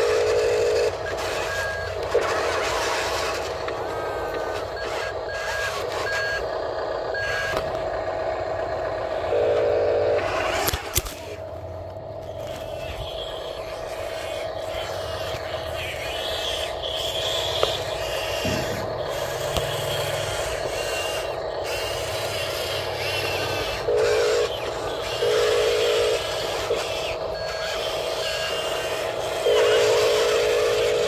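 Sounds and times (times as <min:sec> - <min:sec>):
electric motor whine: 0:00.0 - 0:31.0
toy horn blasts: 0:23.9 - 0:24.5, 0:27.4 - 0:31.0.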